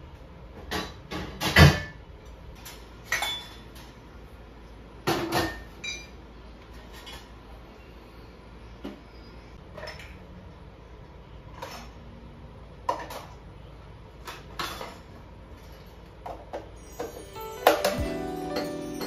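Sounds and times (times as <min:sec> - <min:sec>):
dishes and cups clinking: 0:16.3 - 0:19.0.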